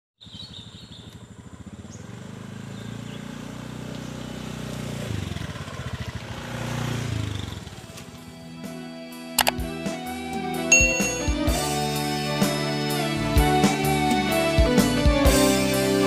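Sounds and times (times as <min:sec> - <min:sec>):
motor scooter engine passing: 0:00.2 - 0:08.5.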